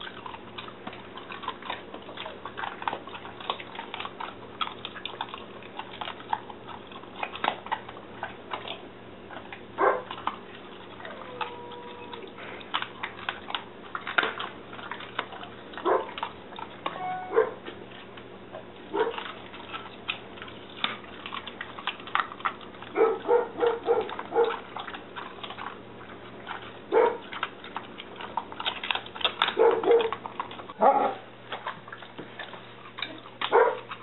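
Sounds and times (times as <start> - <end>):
dog chewing bones: 0.0 - 34.0
dog whining: 10.9 - 12.6, 16.8 - 17.7, 29.6 - 30.2.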